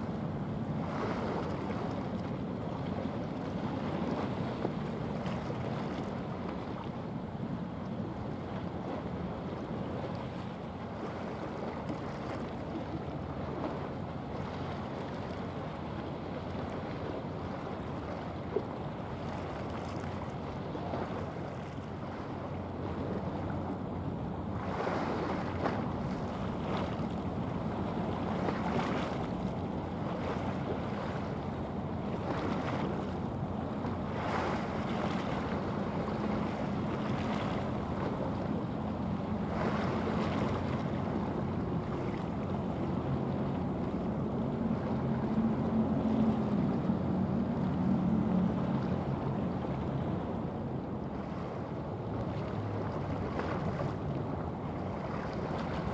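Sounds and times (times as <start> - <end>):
ship diesel engine drone: 25.9 - 51.1.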